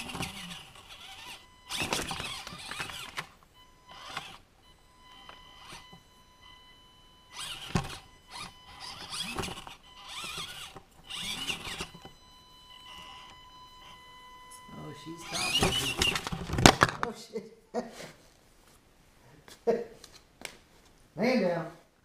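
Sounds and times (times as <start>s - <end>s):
toy car motor whining: 0.0s - 6.6s, 7.3s - 16.4s.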